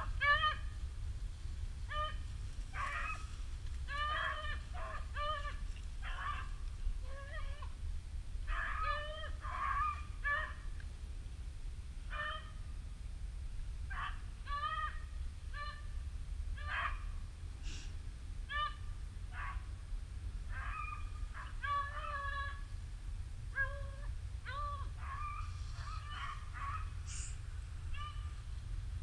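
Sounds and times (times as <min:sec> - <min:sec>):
dogs baying and yelping: 0:00.0 - 0:00.7, 0:01.9 - 0:07.7, 0:08.5 - 0:10.6, 0:12.1 - 0:12.6, 0:13.9 - 0:15.9, 0:16.6 - 0:17.1, 0:18.5 - 0:19.7, 0:20.5 - 0:22.7, 0:23.5 - 0:28.6
low wind rumble: 0:00.0 - 0:29.0.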